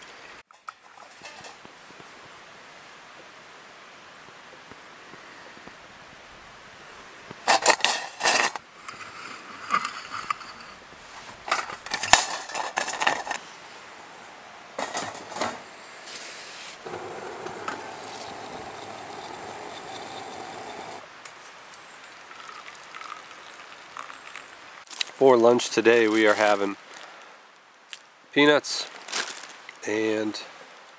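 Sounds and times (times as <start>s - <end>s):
metal clattering and scraping: 0.6s - 1.6s, 10.2s - 13.4s, 14.8s - 15.7s
water pouring into metal bowl: 22.3s - 24.4s.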